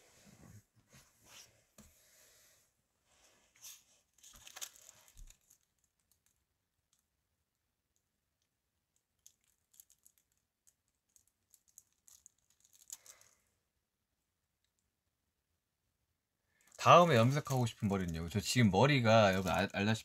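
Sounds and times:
soft rustle: 0.0 - 6.3.

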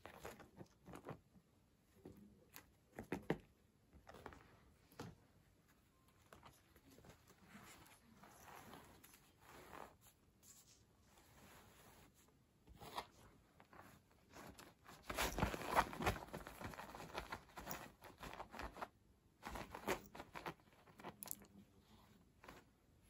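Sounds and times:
cat scratching cloth cushion: 6.3 - 21.6.

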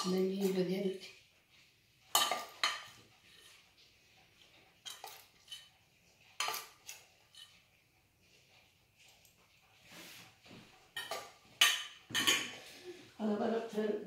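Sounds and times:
metal utensil clinking on cookware: 2.1 - 3.5, 4.8 - 5.7, 6.4 - 7.6, 10.9 - 12.6.

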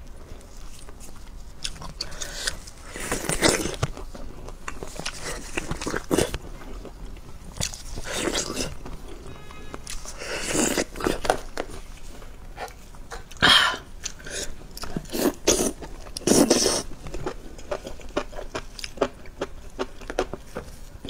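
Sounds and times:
wet chewing and smacking: 0.4 - 9.1, 14.0 - 20.7.

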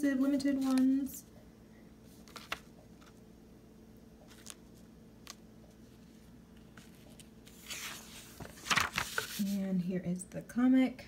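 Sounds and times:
paper rustling: 0.5 - 0.9, 2.1 - 3.2, 4.2 - 9.6.

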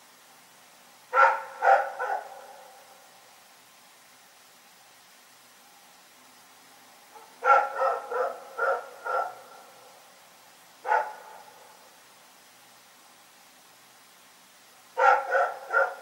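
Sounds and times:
dog barking: 1.1 - 2.9, 7.2 - 9.7, 10.8 - 11.7, 15.0 - 16.0.

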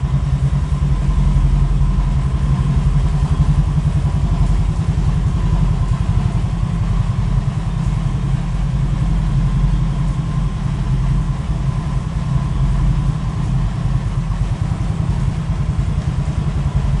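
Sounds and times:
scooter engine idling: 0.0 - 17.0.

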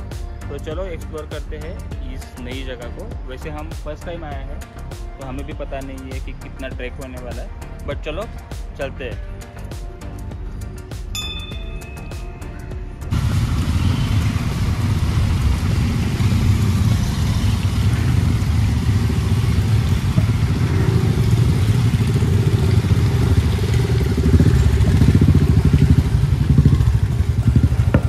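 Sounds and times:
motorcycles riding past: 13.1 - 28.0.

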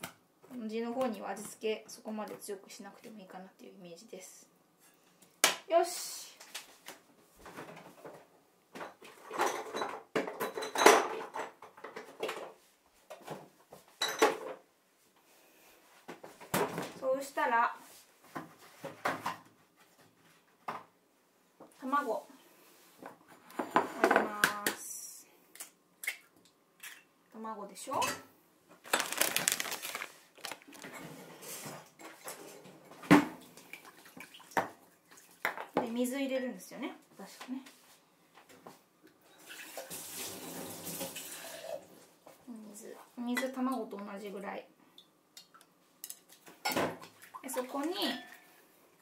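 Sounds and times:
crackling: 28.8 - 31.0.

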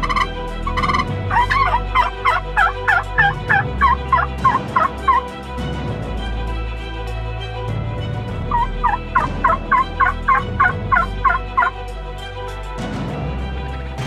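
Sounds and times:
wild turkey calling: 0.0 - 5.2, 8.5 - 11.7
background music: 0.0 - 14.0.

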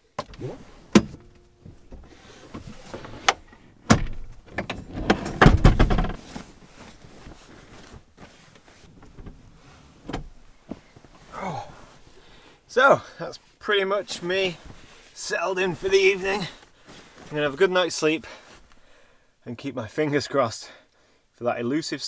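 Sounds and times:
seat mechanism sliding clatter: 0.2 - 10.9
bedding rustling: 0.4 - 12.6, 13.4 - 19.0.

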